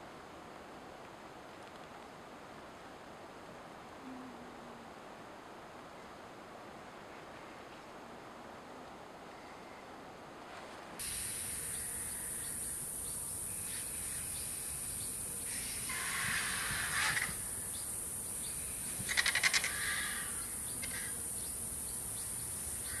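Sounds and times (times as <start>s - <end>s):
steady high hiss: 0.0s - 23.0s
rapid harsh bird notes: 11.0s - 21.6s
harsh bird call: 15.5s - 17.7s.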